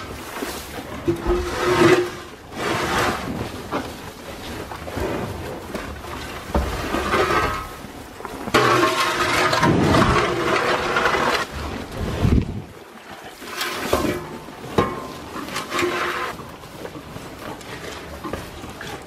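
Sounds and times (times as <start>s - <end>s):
shovel scraping on floor: 0.0s - 3.4s, 6.8s - 7.8s, 8.5s - 11.6s, 15.4s - 16.4s.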